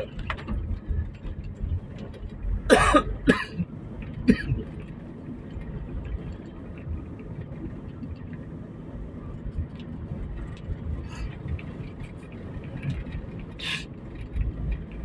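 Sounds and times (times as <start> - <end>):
car driving rumble: 0.0 - 15.0
person coughing: 2.7 - 4.6.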